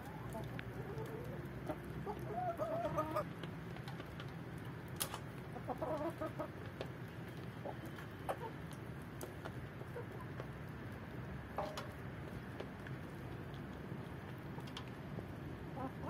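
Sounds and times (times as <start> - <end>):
chickens clucking: 0.0 - 4.4, 5.0 - 10.7, 15.7 - 16.0.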